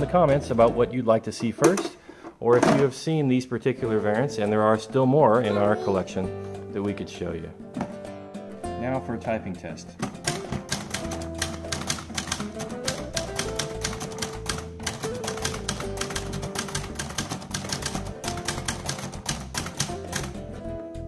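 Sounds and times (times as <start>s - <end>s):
background music with held notes: 0.0s - 21.0s
typewriter keystrokes: 10.2s - 20.4s.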